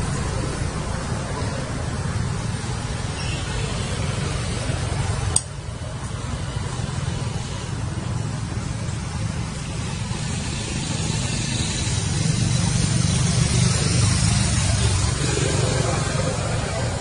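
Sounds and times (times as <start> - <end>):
low rumbling background noise: 0.0 - 17.0
sharp click: 5.3 - 5.6
hiss: 9.2 - 17.0.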